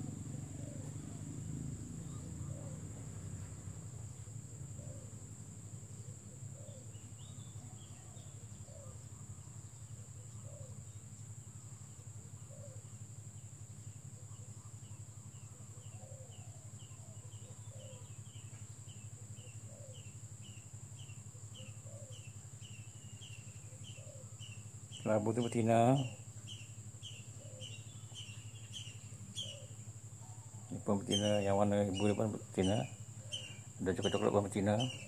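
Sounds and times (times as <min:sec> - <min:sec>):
high insect buzz: 0:00.0 - 0:35.0
low steady hum: 0:00.0 - 0:35.0
bird chirps: 0:05.8 - 0:35.0
high falling chirps: 0:30.7 - 0:35.0.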